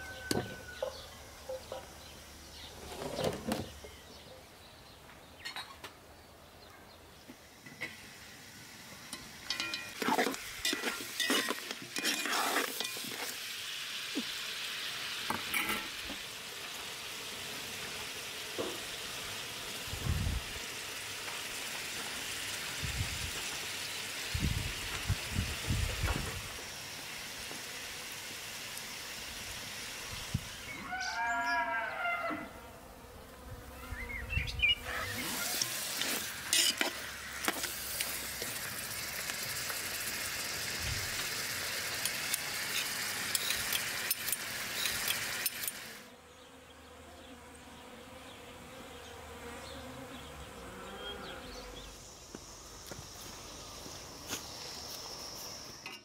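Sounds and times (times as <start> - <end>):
food sizzling in a pot: 7.5 - 31.4, 35.1 - 46.1
utensils clinking against a pot: 9.1 - 13.3, 15.4 - 16.0, 36.0 - 37.0, 42.0 - 45.9.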